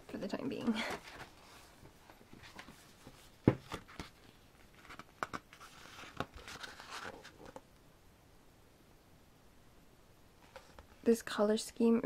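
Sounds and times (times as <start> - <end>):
paper rustling: 0.6 - 7.6.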